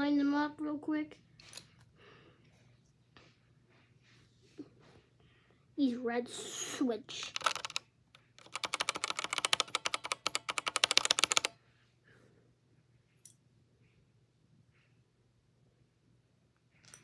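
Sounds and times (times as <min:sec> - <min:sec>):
keyboard key clacks: 0:07.3 - 0:11.5.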